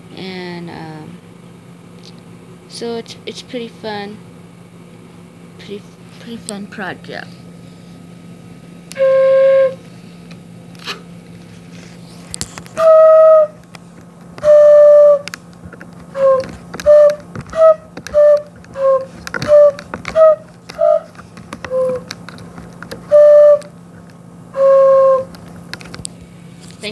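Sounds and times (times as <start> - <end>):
pipe organ flute tones: 8.9 - 9.8, 12.8 - 13.6, 14.4 - 15.4, 16.1 - 22.1, 23.0 - 23.7, 24.6 - 25.3.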